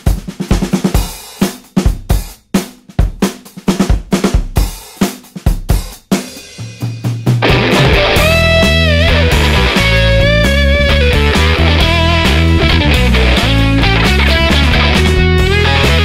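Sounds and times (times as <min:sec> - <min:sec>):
rock drum beat: 0:00.0 - 0:16.0
low bass note: 0:07.4 - 0:16.0.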